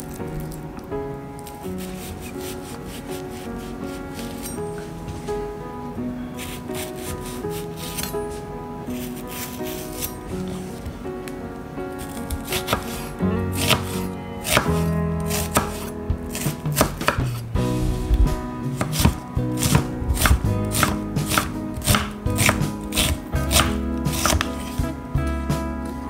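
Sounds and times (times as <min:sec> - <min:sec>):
background music: 0:00.0 - 0:26.0
knife chopping on wooden board: 0:14.5 - 0:14.7, 0:18.8 - 0:24.7.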